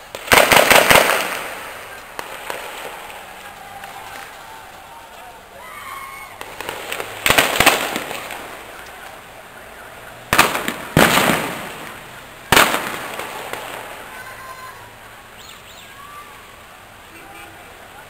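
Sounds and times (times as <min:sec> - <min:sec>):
loud echoing bangs: 0:06.4 - 0:08.7, 0:10.3 - 0:14.1.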